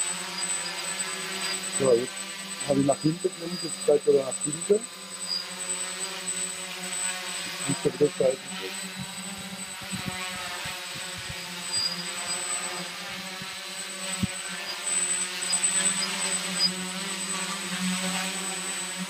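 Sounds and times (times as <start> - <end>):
high motor whine: 0.0 - 19.0
quadcopter propellers buzzing: 0.0 - 19.0.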